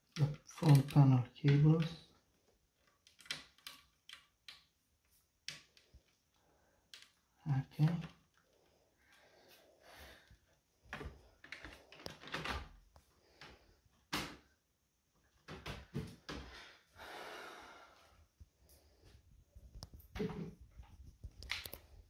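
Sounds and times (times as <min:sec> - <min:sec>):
hands handling plastic parts: 0:10.9 - 0:14.4.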